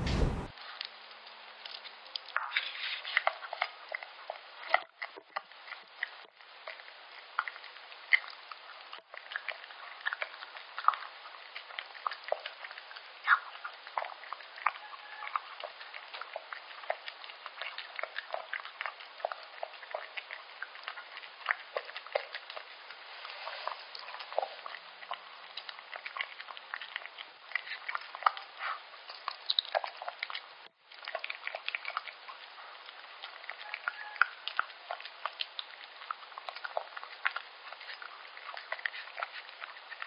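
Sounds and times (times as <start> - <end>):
dog chewing and licking wet food: 0.1 - 40.0.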